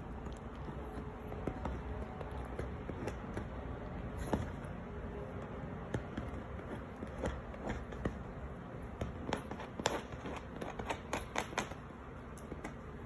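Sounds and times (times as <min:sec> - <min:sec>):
dog paws tapping on leather couch: 0:00.0 - 0:13.0.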